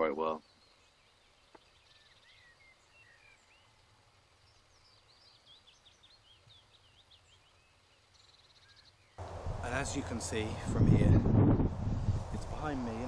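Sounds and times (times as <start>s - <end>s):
faint birds chirping: 0.0s - 13.0s
high bird twittering: 0.3s - 3.8s.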